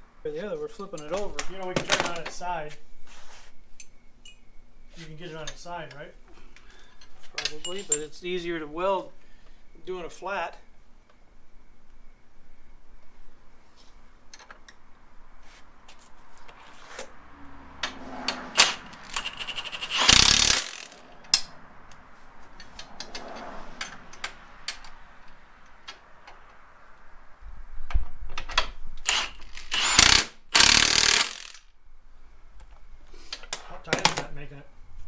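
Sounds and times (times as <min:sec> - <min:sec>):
clinks of bolts and tools: 0:03.8 - 0:04.4, 0:07.0 - 0:08.1
impact wrench hammering: 0:18.6 - 0:21.5, 0:29.1 - 0:31.6.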